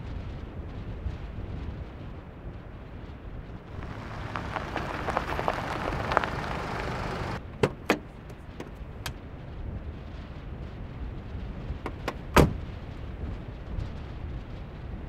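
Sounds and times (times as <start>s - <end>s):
wind rumbling on microphone: 0.0s - 15.0s
footsteps crunching on snow: 3.7s - 7.4s
car door clicks: 11.9s - 12.6s.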